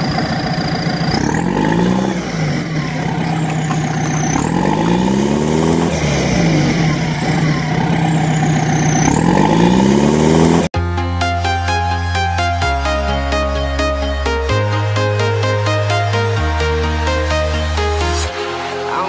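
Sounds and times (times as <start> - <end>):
vehicle engine revving: 0.0 - 10.8
high whine sweeping: 0.0 - 19.0.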